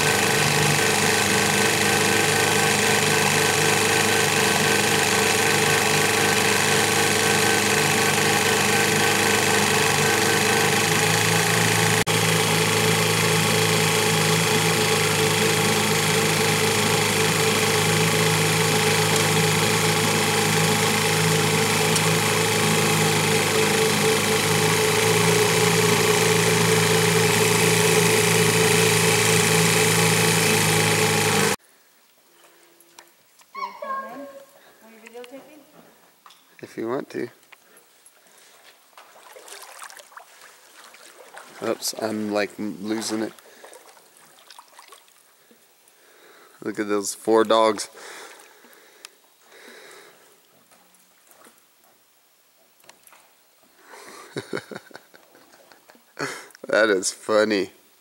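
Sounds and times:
boat motor running: 0.0 - 31.6, 41.4 - 43.4.

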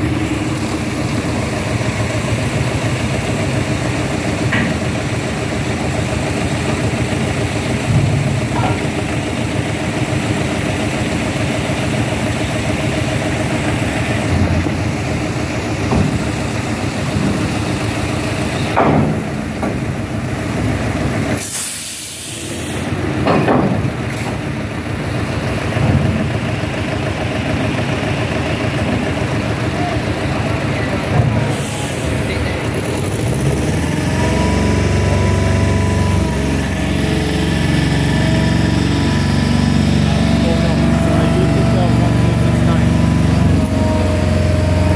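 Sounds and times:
diesel truck engine idling: 0.0 - 44.9
air brake hiss: 21.4 - 22.9, 31.5 - 32.2.

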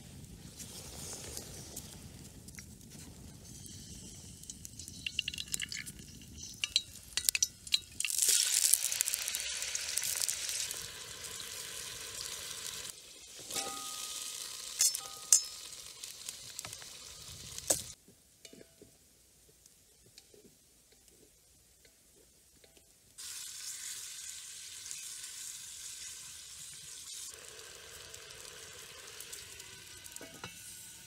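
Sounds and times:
salt poured into oil: 3.4 - 13.0, 13.8 - 17.6, 23.2 - 30.9
hot oil sizzling in a pot: 3.4 - 18.0, 23.2 - 31.0.

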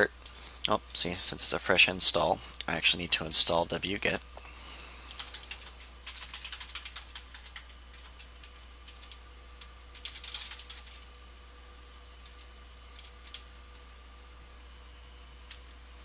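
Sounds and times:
keyboard typing: 5.1 - 11.1, 12.2 - 13.5.

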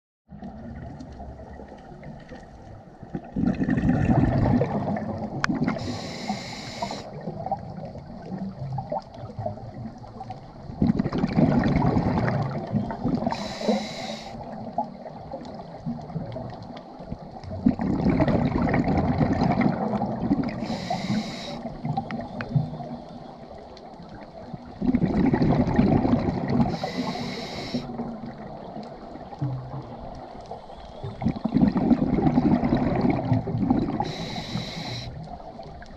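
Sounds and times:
exhaled bubbles gurgling: 0.3 - 35.9
regulator inhale hiss: 5.8 - 7.2, 13.3 - 14.4, 20.6 - 21.8, 26.7 - 27.9, 34.0 - 35.2.

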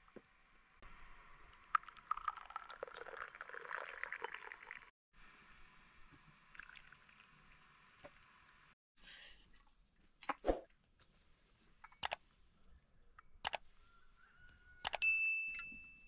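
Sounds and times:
liquid pouring and splashing: 1.4 - 4.9, 6.5 - 8.6
faint clinks: 14.9 - 16.0.

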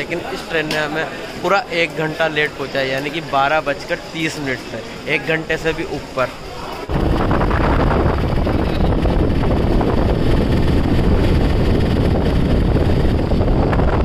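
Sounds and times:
wind rushing over microphone: 6.8 - 14.0
auto-rickshaw engine and road rumble: 7.0 - 14.0.

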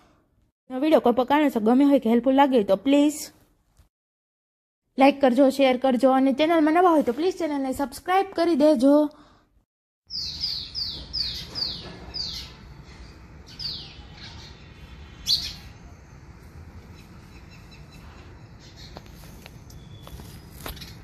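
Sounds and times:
bird chirping: 10.1 - 21.0.

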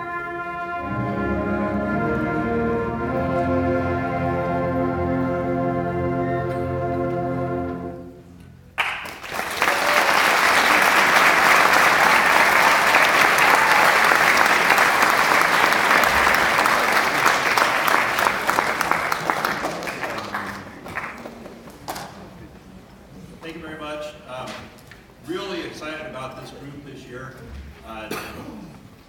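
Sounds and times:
concert band chord: 0.0 - 8.6
audience applauding: 8.8 - 21.9.

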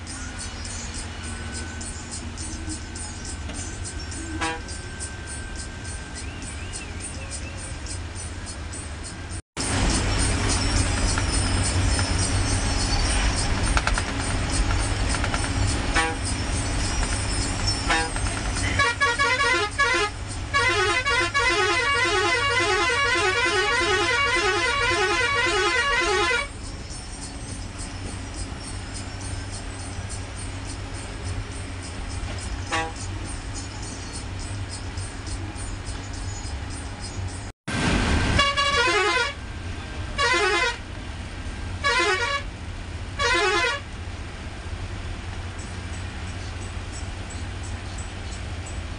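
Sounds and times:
diesel engine humming: 0.0 - 48.9
bus horn toots: 4.1 - 6.8, 15.0 - 16.6, 17.4 - 26.6, 32.4 - 33.2, 38.2 - 41.1, 41.7 - 44.0
warbling musical horn tune: 18.8 - 26.5.

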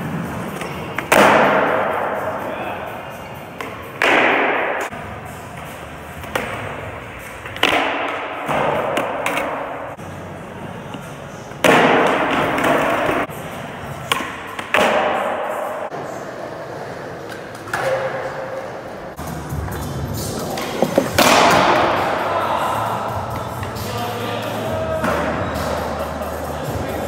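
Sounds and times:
skateboard wheels rolling on concrete: 18.8 - 22.1
skateboard landing thud: 20.7 - 21.9.

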